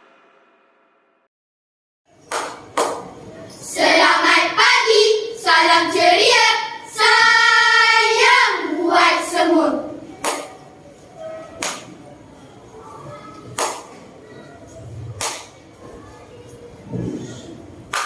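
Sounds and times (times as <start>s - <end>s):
sharp hand claps: 2.2s - 3.1s, 10.2s - 10.6s, 11.6s - 12.0s, 13.5s - 14.0s, 15.2s - 15.6s
children chanting in unison: 3.6s - 10.0s.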